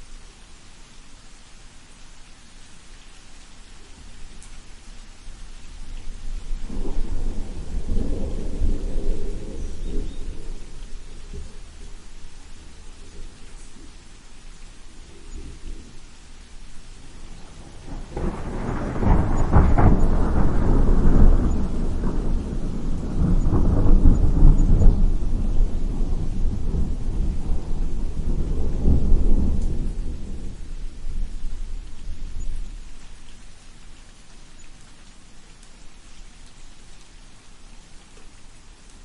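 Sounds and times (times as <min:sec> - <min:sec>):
steady rain: 0:00.0 - 0:39.0
thunder rumbling: 0:05.5 - 0:14.0, 0:16.8 - 0:33.0.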